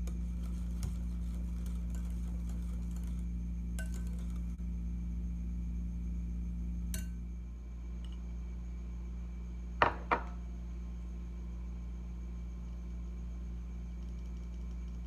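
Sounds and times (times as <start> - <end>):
steady low hum: 0.0 - 15.0
utensils clinking against glass bowl: 3.8 - 4.4.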